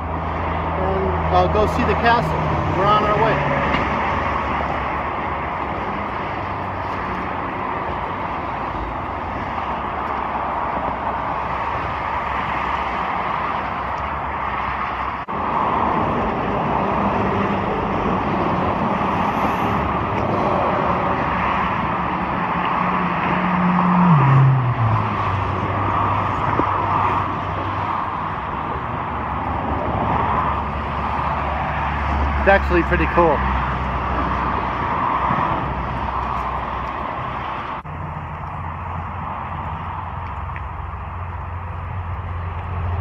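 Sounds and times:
highway traffic noise: 0:00.0 - 0:43.0
vehicle passing beneath: 0:14.7 - 0:40.0.

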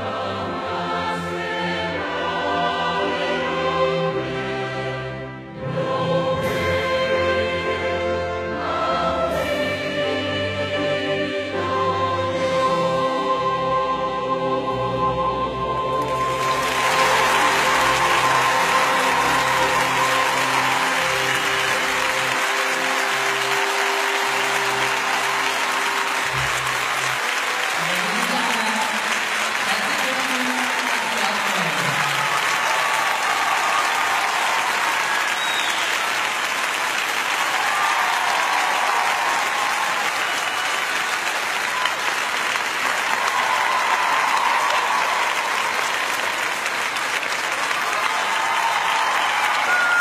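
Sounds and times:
closing music: 0:00.4 - 0:27.8
crowd applauding: 0:15.9 - 0:50.0.

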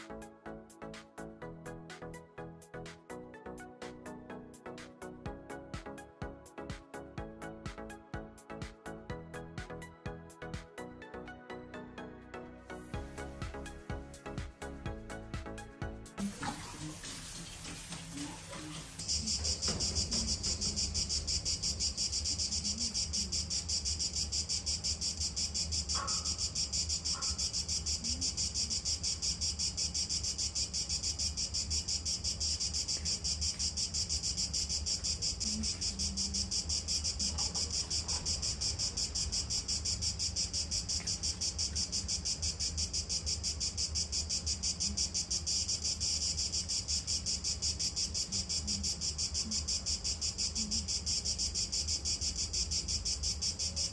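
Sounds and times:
insects singing: 0:16.2 - 0:53.9.

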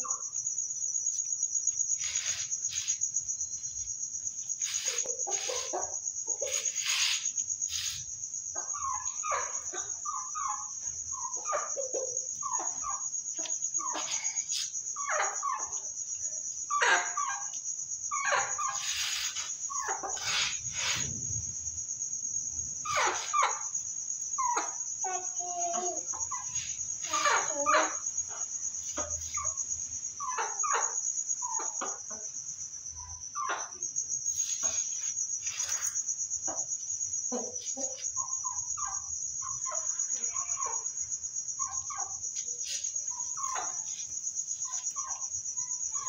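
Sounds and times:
crickets chirring: 0:00.0 - 0:46.0
sharp scratchy noises: 0:01.8 - 0:09.7, 0:18.2 - 0:21.3
chickens clucking: 0:04.4 - 0:08.0, 0:08.6 - 0:16.0, 0:16.7 - 0:21.1, 0:24.4 - 0:32.4, 0:36.4 - 0:41.0, 0:41.6 - 0:46.0.

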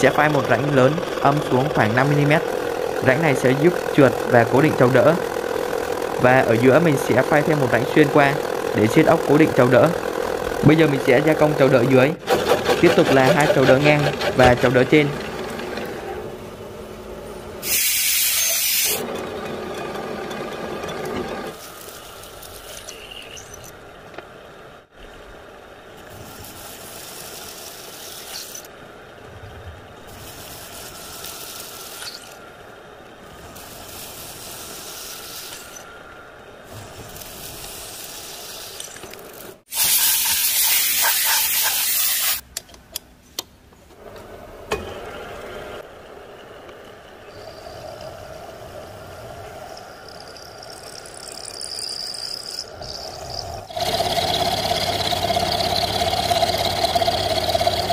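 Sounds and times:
milling machine cutting steel: 0:00.0 - 0:16.1, 0:50.1 - 0:57.9
hiss: 0:17.6 - 0:19.0, 0:26.1 - 0:28.7, 0:30.1 - 0:32.4, 0:33.3 - 0:35.8, 0:36.6 - 0:38.9, 0:39.7 - 0:42.4.

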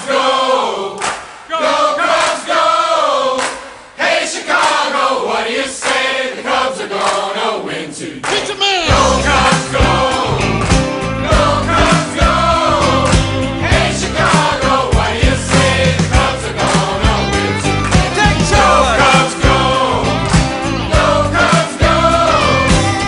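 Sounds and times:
voices singing together: 0:00.0 - 0:23.0
band with heavy bass beat: 0:08.7 - 0:23.0.

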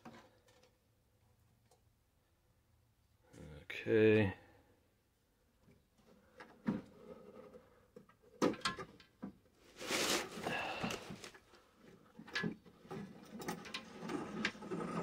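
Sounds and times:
metal scraping on wood: 0:12.8 - 0:15.0.

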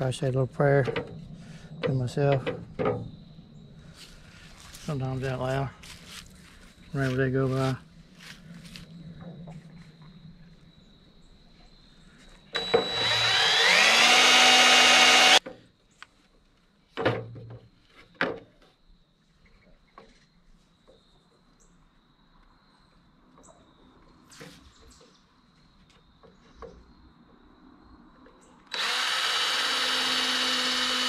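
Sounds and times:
power drill running: 0:12.5 - 0:15.4, 0:28.7 - 0:31.0.

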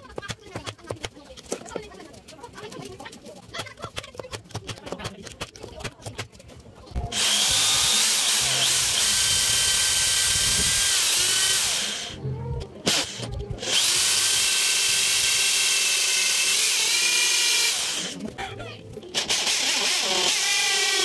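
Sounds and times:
electric drill boring into wood: 0:07.1 - 0:12.2, 0:12.9 - 0:18.2, 0:19.1 - 0:21.0.

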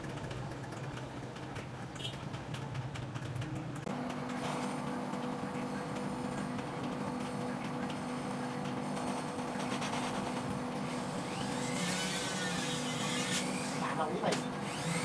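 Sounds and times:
electric motor humming: 0:03.9 - 0:15.0
scratchy tool sounds: 0:09.6 - 0:15.0.

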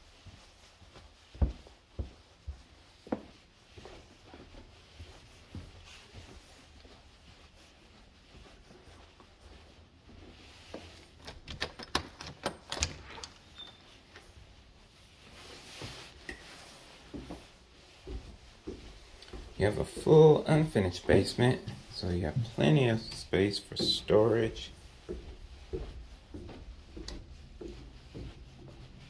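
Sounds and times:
footsteps on carpeted stairs: 0:00.0 - 0:11.5, 0:13.3 - 0:29.0
doorknob turning: 0:11.2 - 0:13.8.

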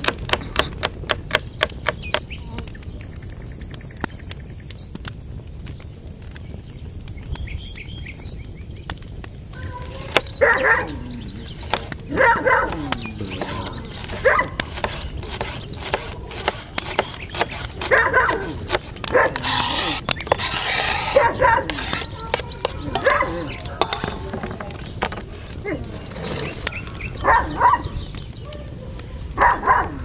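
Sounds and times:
dog barking and yelping: 0:09.6 - 0:14.7, 0:17.8 - 0:23.6, 0:27.2 - 0:30.0.

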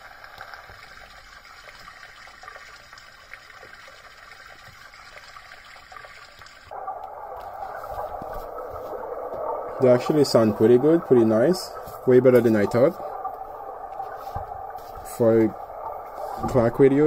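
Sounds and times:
flowing water hiss from speaker: 0:00.0 - 0:17.0
dull hiss: 0:06.7 - 0:17.0.

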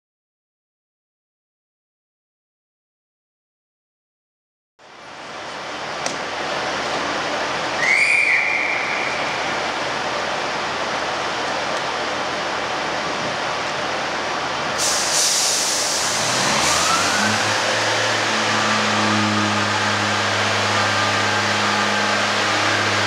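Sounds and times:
diesel train engines idling: 0:04.8 - 0:23.0
high whistle: 0:07.8 - 0:09.4
air hissing: 0:14.8 - 0:16.3.

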